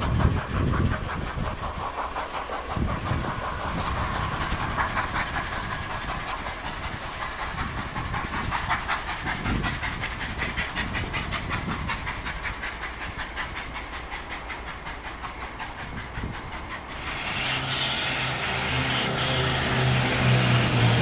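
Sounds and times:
steam hiss: 0.0s - 21.0s
steam locomotive chuffing: 0.0s - 21.0s
low hum: 17.0s - 21.0s.

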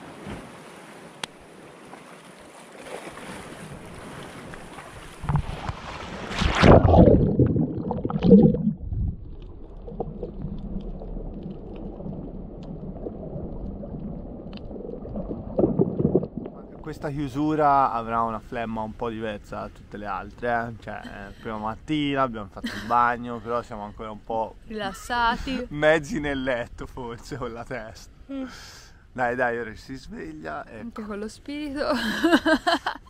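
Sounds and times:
water surface noise: 0.0s - 24.7s
wind: 0.0s - 33.0s
loud splashing: 2.7s - 16.8s
muffled underwater rush: 3.2s - 22.2s.

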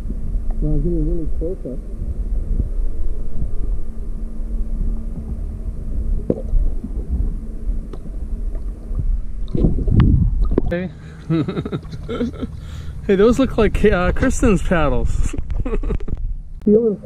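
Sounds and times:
faint steady hum: 0.0s - 17.0s
underwater water rumble and gurgle: 1.4s - 10.8s.

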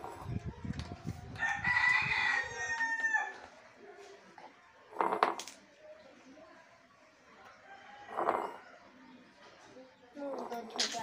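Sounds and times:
rooster crowing: 1.4s - 3.4s.

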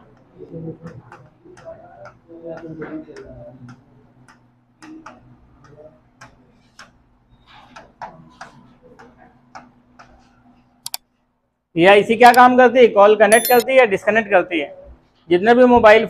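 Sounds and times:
chalk tapping and scraping on blackboard: 0.9s - 10.7s.

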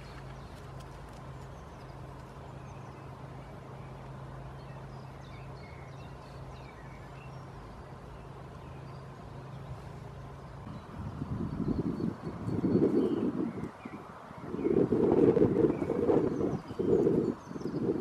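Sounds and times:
rain falling on wood: 0.0s - 2.5s
low steady hum: 0.0s - 18.0s.

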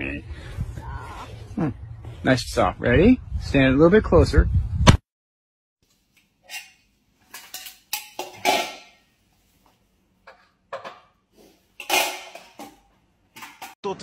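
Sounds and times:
metal instruments clinking: 6.4s - 9.0s.

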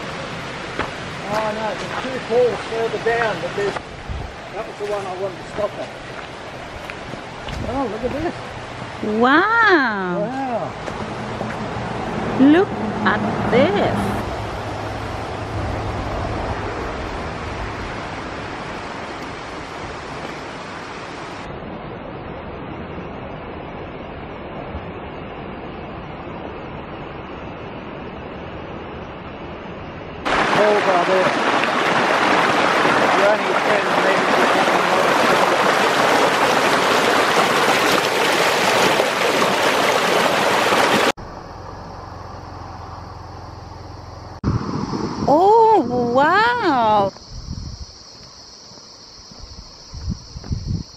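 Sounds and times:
water rushing over rocky cascade: 0.0s - 9.0s, 30.3s - 41.2s.

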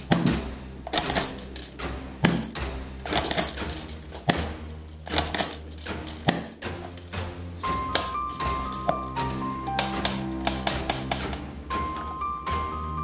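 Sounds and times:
background music with bass: 0.0s - 13.0s
toy pistols clicking: 9.8s - 11.4s.

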